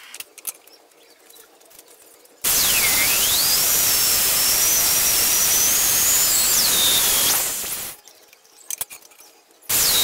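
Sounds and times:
drill boring into steel: 0:02.5 - 0:08.0, 0:09.7 - 0:10.0
high squeal of drill bit: 0:02.5 - 0:08.0, 0:09.7 - 0:10.0.

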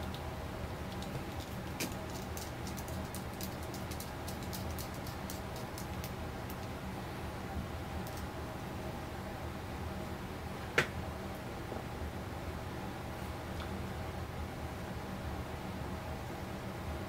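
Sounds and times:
small parts clicking and tapping: 0:00.9 - 0:06.7, 0:08.0 - 0:08.2.

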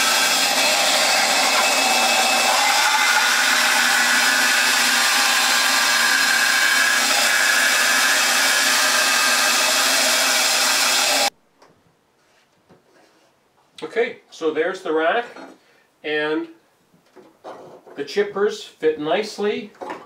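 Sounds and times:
band saw cutting wood: 0:00.0 - 0:11.3.

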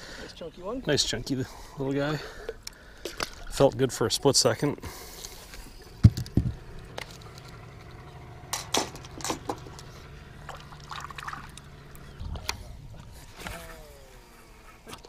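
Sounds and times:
knocks and clicks: 0:06.0 - 0:06.6
water splashing against boat: 0:08.7 - 0:13.6.

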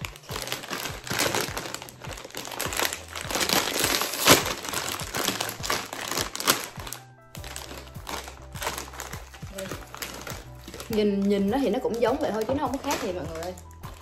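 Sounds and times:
plastic snack bag crinkling: 0:00.0 - 0:14.0.

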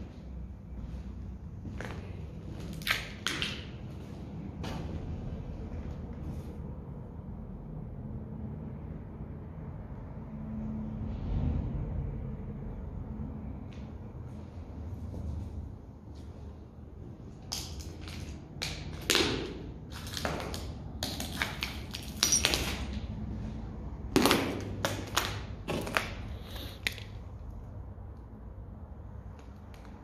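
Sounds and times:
footsteps crunching over debris: 0:00.0 - 0:05.3.

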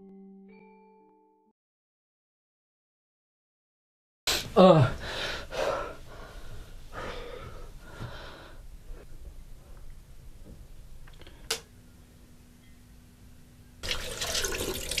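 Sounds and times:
person breathing heavily: 0:04.3 - 0:09.1.

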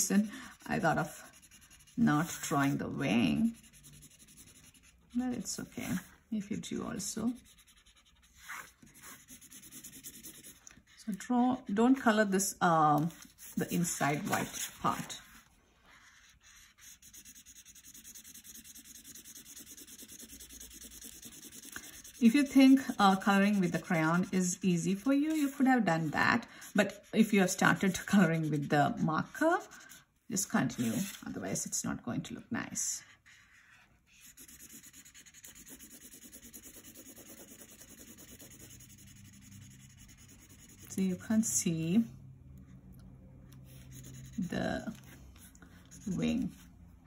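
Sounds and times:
marker scrubbing on paper: 0:00.0 - 0:11.0, 0:12.9 - 0:31.4, 0:33.0 - 0:41.6, 0:43.5 - 0:46.7
felt-tip marker scribbling on paper: 0:16.0 - 0:28.8, 0:34.1 - 0:40.9.

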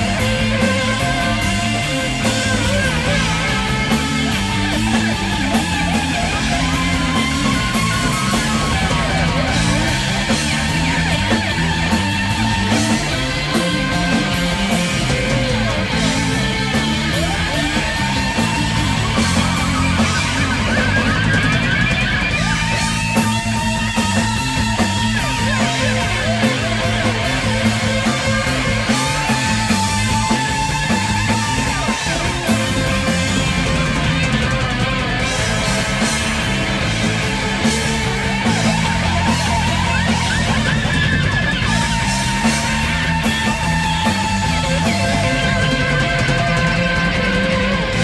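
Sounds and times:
rock band playing: 0:00.0 - 0:48.0.

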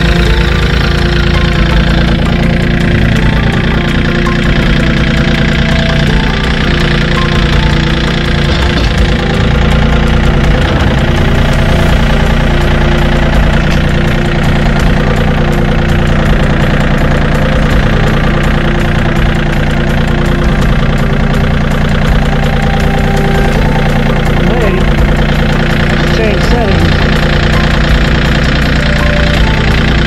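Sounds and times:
tractor diesel engine running: 0:00.0 - 0:30.0.

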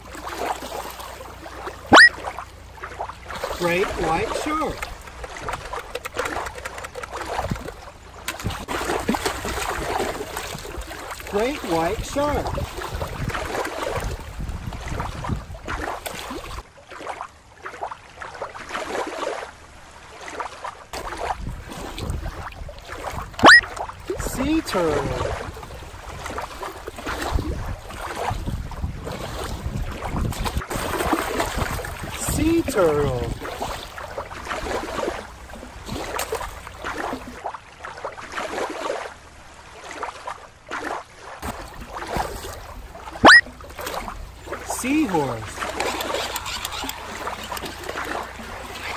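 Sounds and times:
water lapping on rocks: 0:00.0 - 0:48.9
water running over rocks: 0:03.2 - 0:14.2, 0:24.2 - 0:25.2
wind buffeting microphone: 0:03.9 - 0:16.0, 0:21.1 - 0:36.9.

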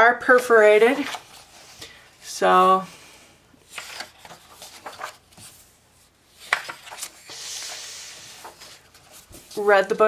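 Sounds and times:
paper pages crackling: 0:00.4 - 0:01.8, 0:03.6 - 0:10.0
paper page snapping: 0:06.4 - 0:07.2.

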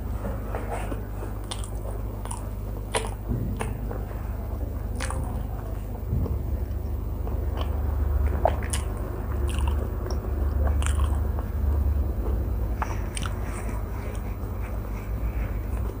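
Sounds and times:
low steady hum: 0:00.0 - 0:16.0
mouth chewing food: 0:00.1 - 0:16.0.

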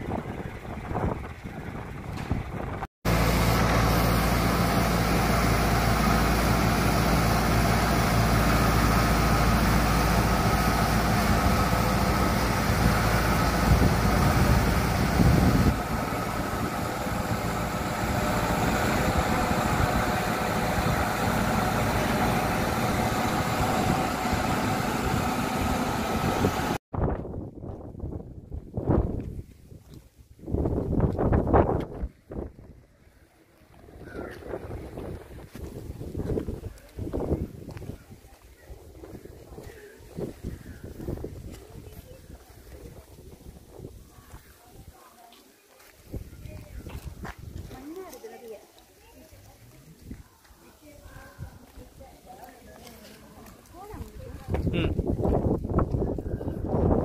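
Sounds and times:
tractor engine running: 0:00.0 - 0:26.8
feed mixer wagon machinery: 0:00.2 - 0:26.8.

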